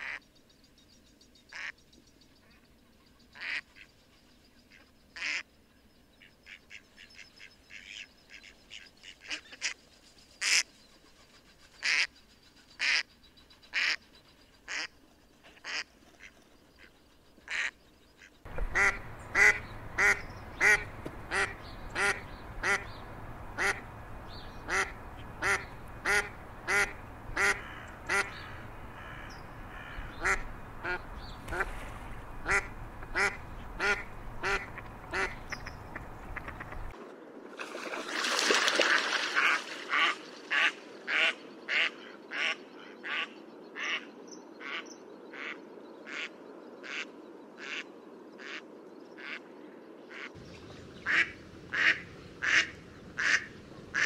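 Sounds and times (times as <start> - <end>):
steady background noise: 0.0 - 54.0
mallard quacking: 18.5 - 23.0, 23.6 - 23.9, 24.6 - 31.7, 32.4 - 36.9, 51.0 - 54.0.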